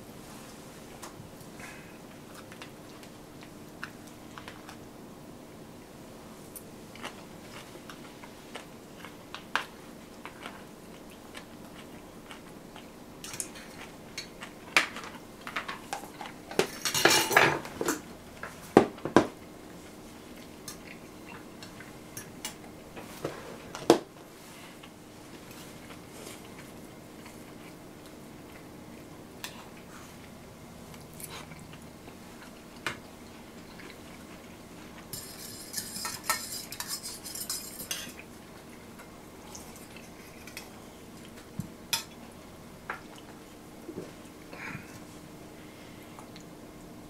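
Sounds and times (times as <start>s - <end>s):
cutlery clinking against steel bowls: 16.6s - 18.0s, 35.1s - 38.2s
tableware clatter: 16.6s - 18.0s, 35.1s - 38.2s.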